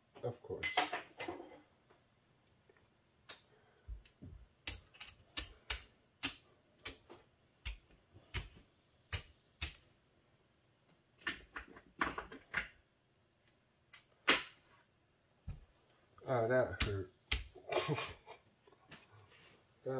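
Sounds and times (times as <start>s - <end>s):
clay chips clacking: 4.0s - 9.8s.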